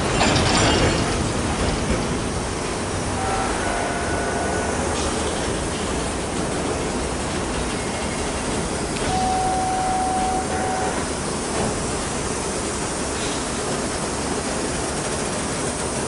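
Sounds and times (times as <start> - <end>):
train cars rolling on rails: 0.0 - 16.0
high steel squeal: 3.2 - 5.2, 9.0 - 11.0.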